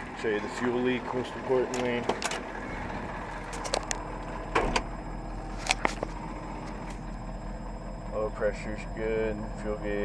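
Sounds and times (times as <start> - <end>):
diesel engine idling: 0.0 - 10.0
door and cab clicks and knocks: 4.5 - 4.9.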